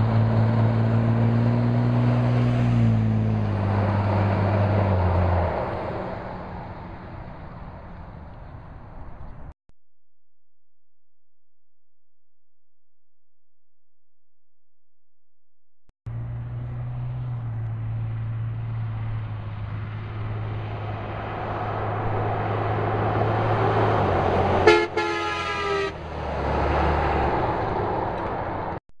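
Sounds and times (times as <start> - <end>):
diesel truck driving past: 0.0 - 9.6, 16.1 - 28.8
truck air horn: 24.6 - 26.0.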